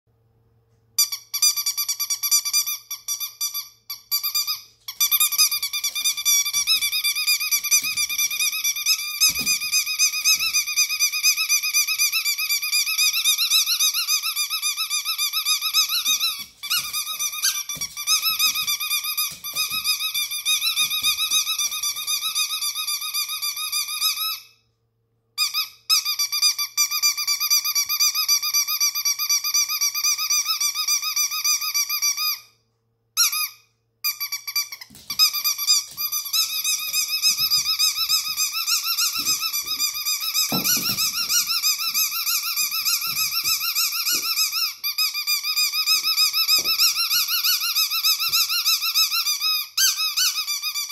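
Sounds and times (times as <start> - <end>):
dog jumping thumps: 34.9 - 44.5.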